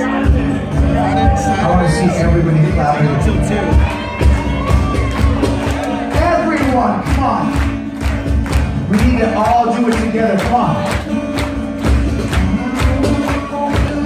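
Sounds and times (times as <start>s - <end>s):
man singing: 0.0s - 4.1s, 8.8s - 11.1s, 12.2s - 14.0s
strummed acoustic guitar: 0.0s - 14.0s.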